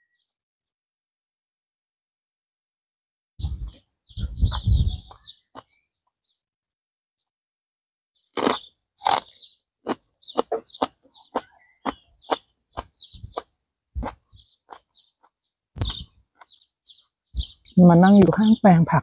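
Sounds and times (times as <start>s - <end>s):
teeth biting raw onion: 8.3s - 15.3s
crisp chewing crunches: 8.3s - 16.5s.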